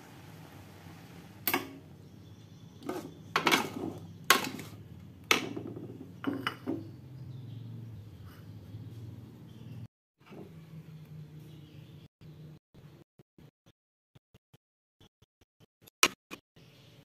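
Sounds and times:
metal utensils clanking in a wok: 2.8s - 6.8s.

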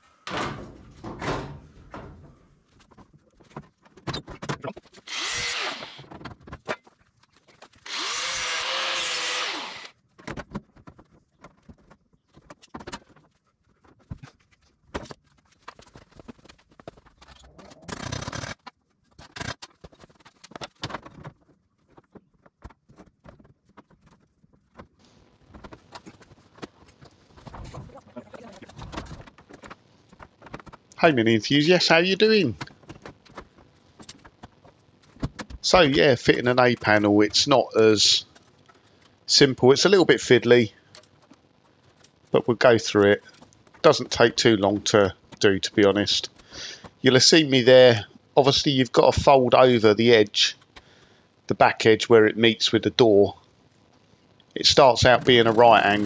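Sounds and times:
power tool running: 5.0s - 6.1s, 7.8s - 9.9s.

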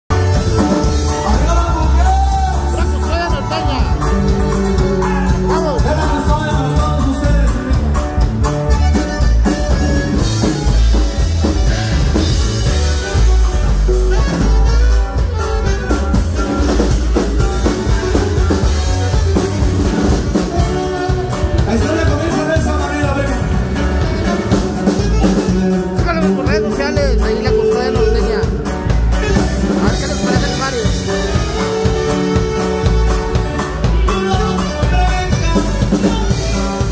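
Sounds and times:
band playing through speakers: 0.1s - 36.9s
button accordion: 2.6s - 36.9s
alto saxophone: 8.4s - 21.8s, 23.5s - 36.9s.

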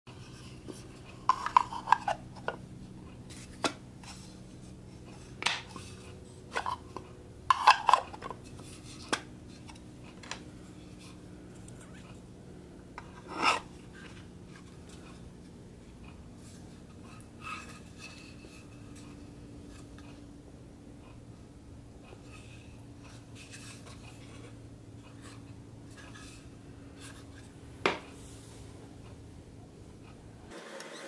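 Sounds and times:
steady low hum: 0.1s - 30.5s
wooden lid rubbing slide: 0.2s - 2.6s.

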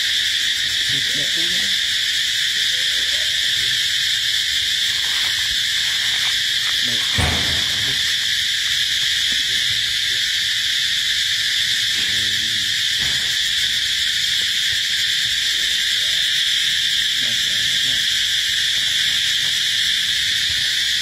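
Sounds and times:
insect chorus drone: 0.0s - 21.0s
dull thump: 5.2s - 8.4s.

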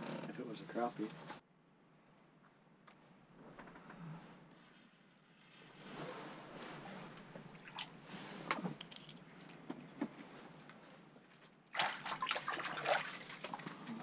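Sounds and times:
water splashing and sloshing: 7.5s - 9.1s, 11.6s - 14.0s.

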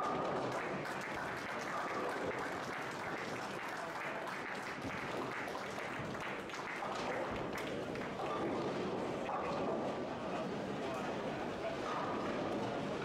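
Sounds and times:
applause: 0.0s - 9.3s.

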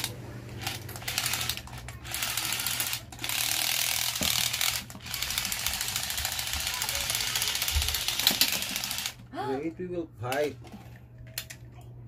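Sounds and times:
toy robot motor whirring and clattering: 0.0s - 9.2s.

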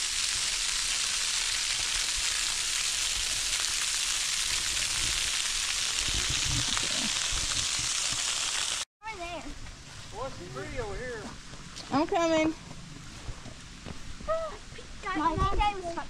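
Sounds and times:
small waterfall splashing on rock: 0.0s - 8.9s.

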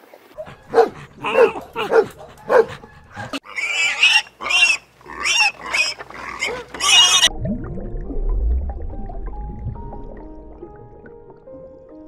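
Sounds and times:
puppy yelping: 0.4s - 7.3s
piglets squealing: 3.0s - 7.3s.

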